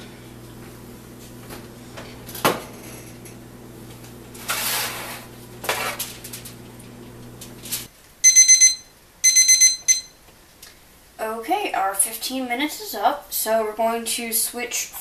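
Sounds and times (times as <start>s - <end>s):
thermometer alarm beeps: 8.2s - 10.2s.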